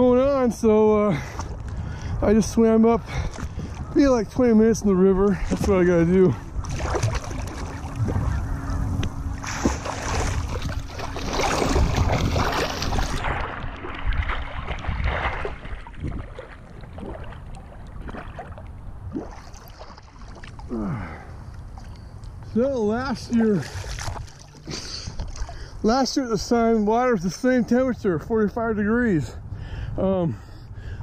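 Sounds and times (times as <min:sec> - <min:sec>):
water splashing from swimming: 0:06.6 - 0:08.6, 0:09.4 - 0:22.0, 0:23.3 - 0:25.8.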